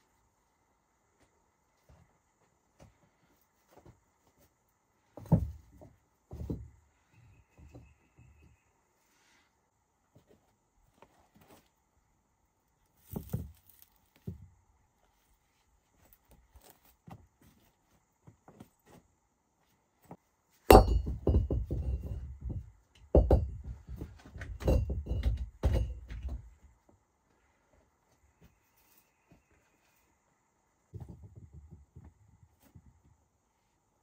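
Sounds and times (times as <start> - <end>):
stones knocking and clattering: 13.0 - 14.4.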